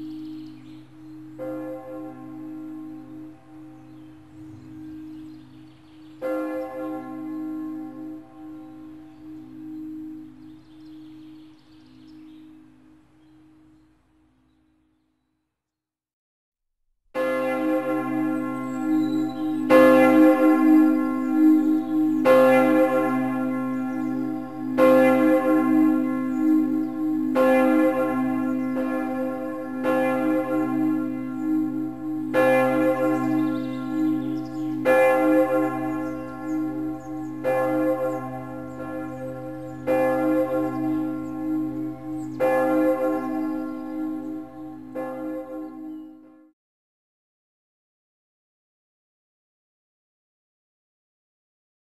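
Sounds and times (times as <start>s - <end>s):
large bell tolling: 17.2s - 45.9s.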